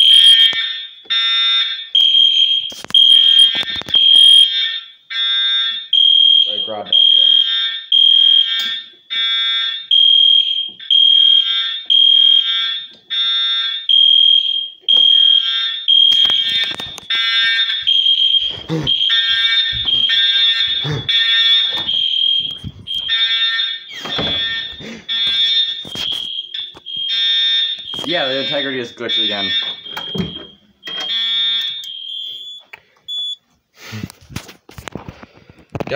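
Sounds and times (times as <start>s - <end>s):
fire alarm electronic tone: 0.0s - 33.4s
buzzy alarm horn: 6.3s - 32.6s.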